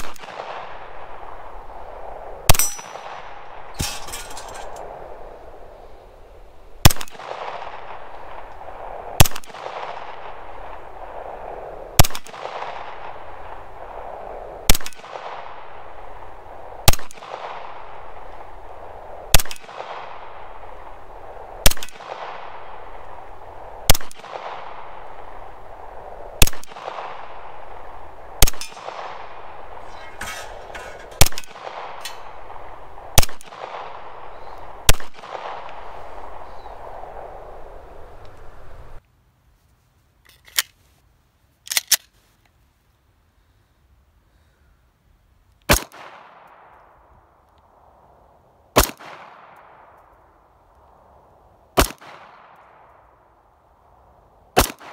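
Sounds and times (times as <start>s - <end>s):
pistol shots with echo: 2.5s - 4.7s, 26.4s - 36.0s, 51.8s - 52.6s, 54.6s - 54.9s.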